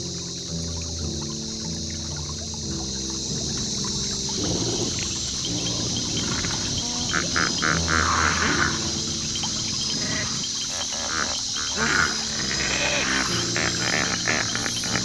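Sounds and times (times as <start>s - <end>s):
steady high hiss: 0.0s - 15.0s
hippos grunting and honking: 4.3s - 15.0s.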